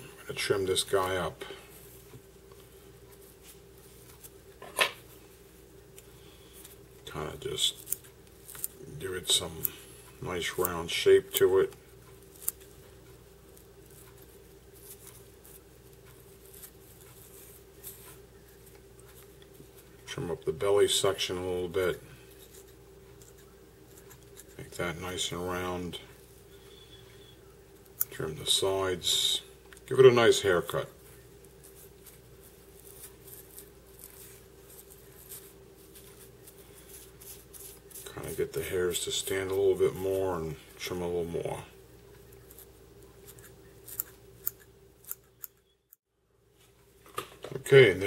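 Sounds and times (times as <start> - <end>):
steady low hum: 0.0 - 48.0
small scissors snipping: 43.3 - 45.6.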